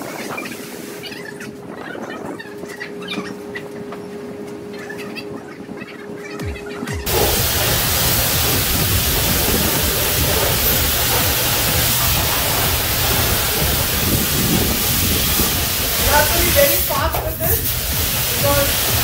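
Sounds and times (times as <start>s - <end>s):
low hum: 2.4s - 19.0s
high-pressure water jet hissing: 7.0s - 19.0s.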